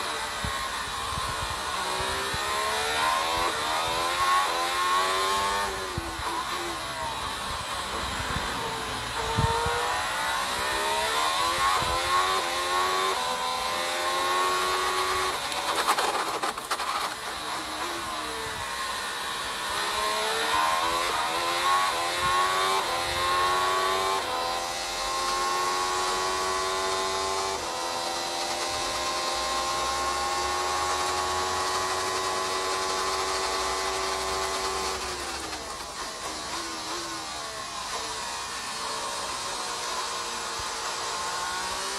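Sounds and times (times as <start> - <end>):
racing car engine revving: 0.0 - 41.9.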